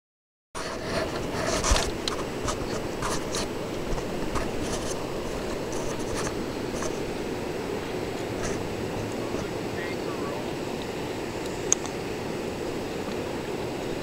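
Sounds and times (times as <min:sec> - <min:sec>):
camera handling scratches: 0:00.6 - 0:07.1
steady low hiss: 0:00.6 - 0:14.0.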